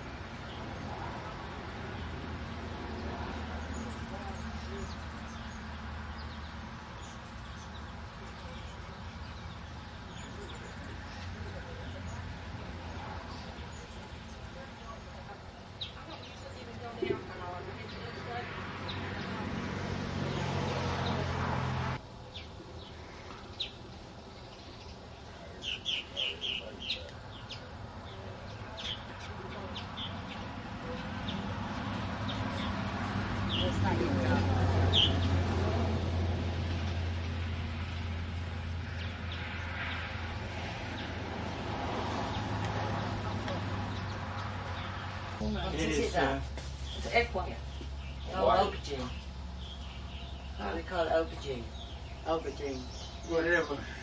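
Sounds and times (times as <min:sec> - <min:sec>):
small birds chirping: 0:00.0 - 0:35.9, 0:36.5 - 0:54.0
bird chirps: 0:24.4 - 0:30.5.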